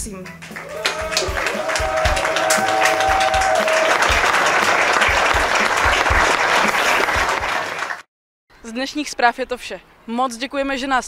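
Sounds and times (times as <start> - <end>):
crowd clapping: 0.4 - 8.1.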